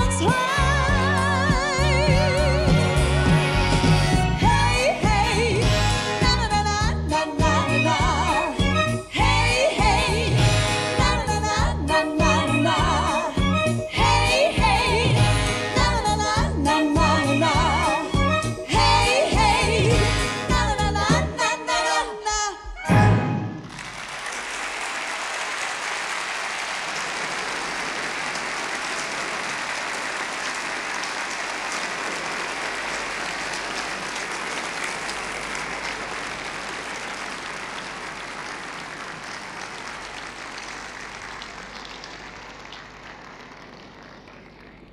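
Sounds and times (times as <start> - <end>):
audience applauding: 23.6 - 44.9.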